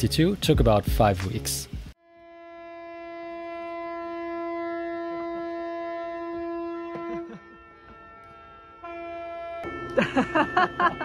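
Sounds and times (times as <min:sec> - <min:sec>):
boat horn blast: 0:02.0 - 0:10.0.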